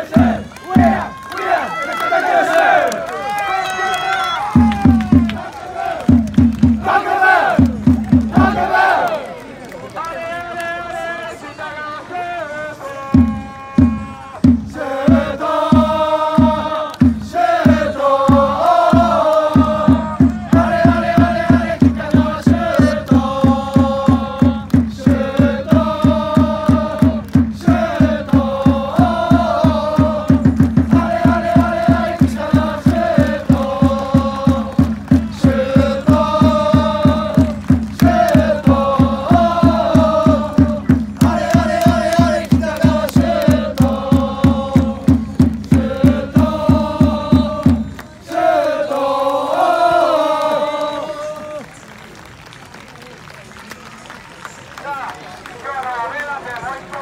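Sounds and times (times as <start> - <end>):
bass drum beat: 0.0 - 1.1, 4.5 - 5.4, 6.1 - 6.9, 7.5 - 8.7, 13.2 - 48.0
crowd chanting in unison: 0.0 - 3.1, 4.9 - 9.4, 10.9 - 51.7.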